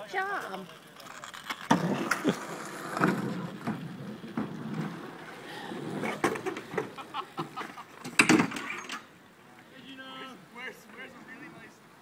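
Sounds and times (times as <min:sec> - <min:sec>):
scooter wheels rolling over asphalt: 0:00.0 - 0:09.2
scooters knocking on ramps: 0:06.1 - 0:08.8.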